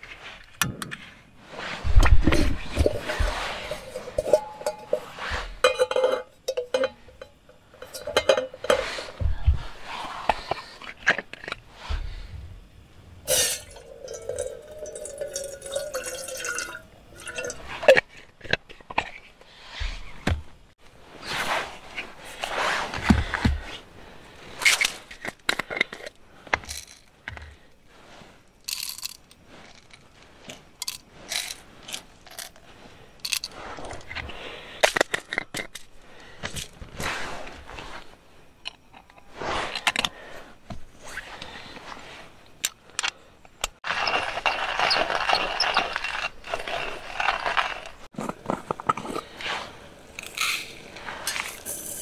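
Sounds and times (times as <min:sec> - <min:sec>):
hand coffee grinder scraping: 0:01.4 - 0:12.1, 0:43.8 - 0:52.0
jars and lids clicking: 0:02.8 - 0:08.9.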